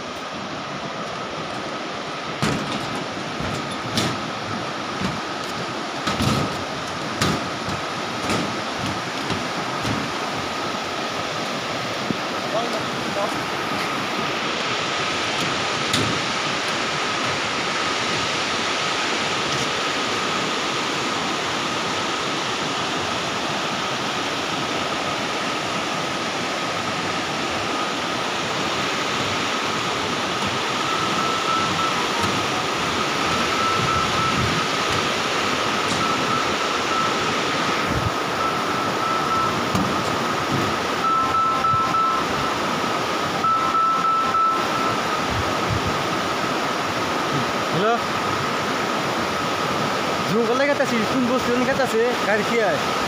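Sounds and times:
river rushing over boulders: 0.0 - 53.0.

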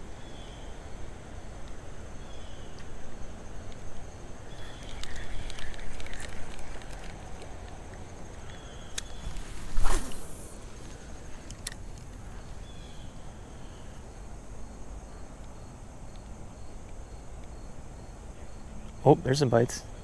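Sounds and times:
insects chirping: 0.0 - 20.0
faint clicks: 4.6 - 9.4.

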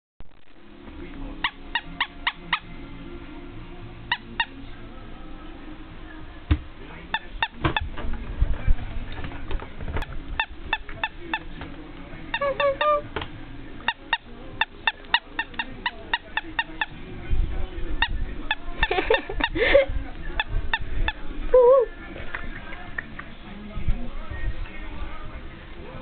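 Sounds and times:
handling rumble: 7.6 - 12.3
squeaky toy squeaks: 12.3 - 13.1.

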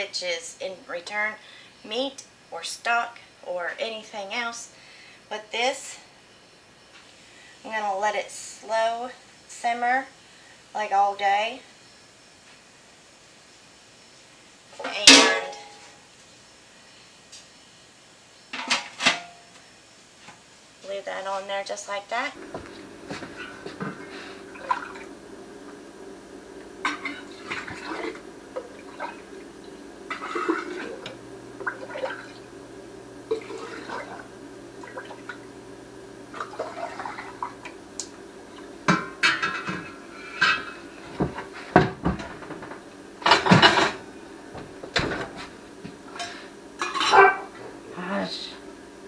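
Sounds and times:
steady low hum: 20.8 - 49.0
liquid splashing: 24.5 - 25.1, 26.8 - 32.5, 33.3 - 35.5, 36.3 - 37.8.

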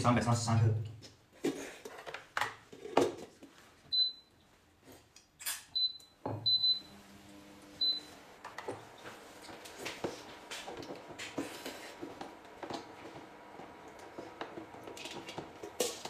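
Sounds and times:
knocks and handling sounds: 1.4 - 3.8
kitchen scale beeps: 3.9 - 4.3, 5.8 - 7.0, 7.8 - 8.1.

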